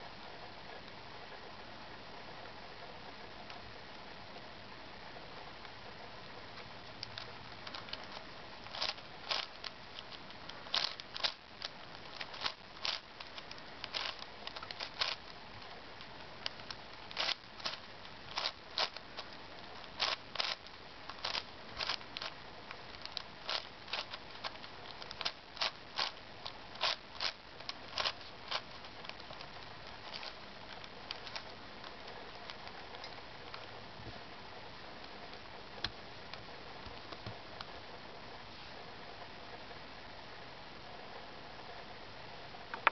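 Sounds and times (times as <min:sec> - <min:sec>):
steady hiss: 0:00.0 - 0:42.9.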